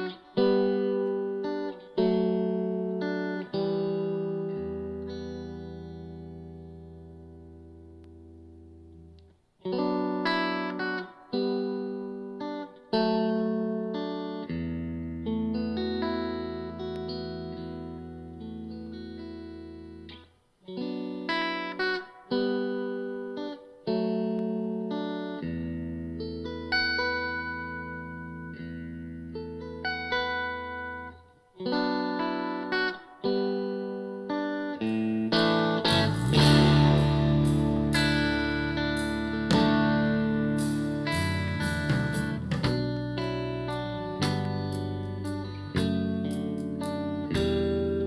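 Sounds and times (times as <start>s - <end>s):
guitar chords through speakers: 0.0s - 48.0s
music through speakers: 35.9s - 47.9s.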